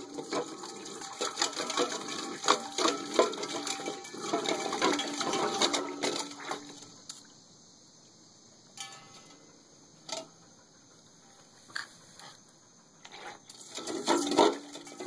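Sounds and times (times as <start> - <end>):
metal bowl clanking: 0.0 - 6.9, 8.8 - 9.5, 13.5 - 15.0
water sloshing in bowl: 0.0 - 7.4, 13.1 - 15.0.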